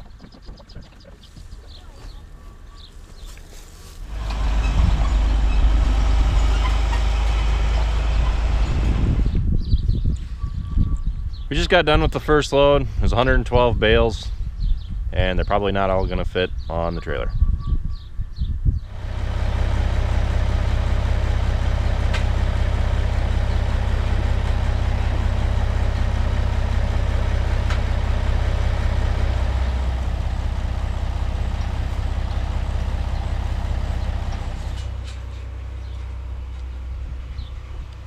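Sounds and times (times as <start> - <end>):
tractor engine idling: 0.0 - 9.5, 18.9 - 38.0.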